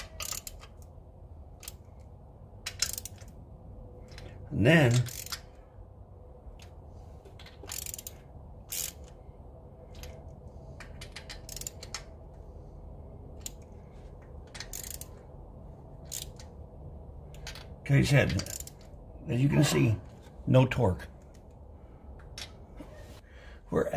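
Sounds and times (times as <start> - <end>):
hand ratchet clicking: 0.0 - 0.9, 1.6 - 3.4, 4.9 - 5.6, 7.3 - 9.2, 9.9 - 12.1, 13.4 - 15.3, 16.0 - 16.5, 17.3 - 18.9.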